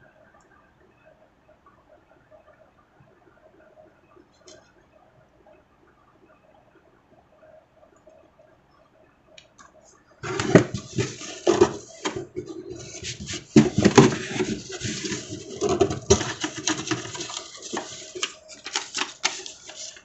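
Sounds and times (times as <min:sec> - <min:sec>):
paper and cardboard rustling: 0:10.2 - 0:20.0.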